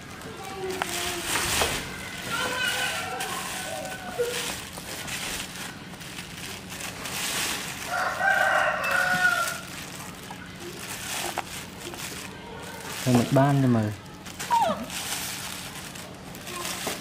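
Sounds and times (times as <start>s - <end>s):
plastic bag rustling: 0.0s - 17.0s
rooster crowing: 2.7s - 4.6s, 7.8s - 9.8s.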